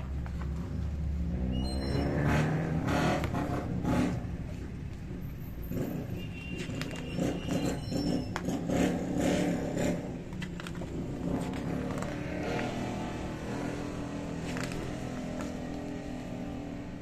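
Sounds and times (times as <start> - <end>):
magazine pages rustling: 10.3 - 12.4, 14.3 - 16.0.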